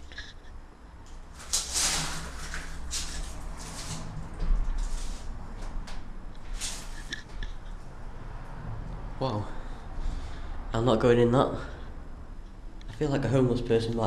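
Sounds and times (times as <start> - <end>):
scuffing and rustling in metal van: 1.2 - 8.0.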